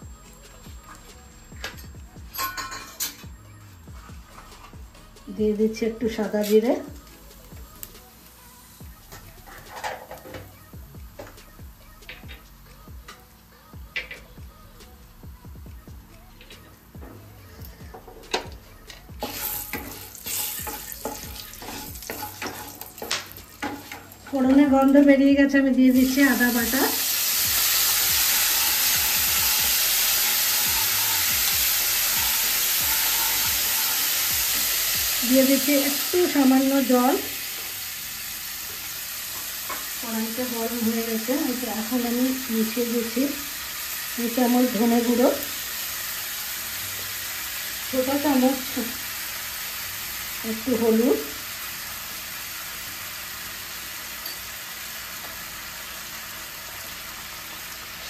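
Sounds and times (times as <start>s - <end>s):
spatula stirring in a pan: 19.2s - 24.6s, 25.9s - 36.0s
paste sizzling in hot oil: 19.2s - 58.0s.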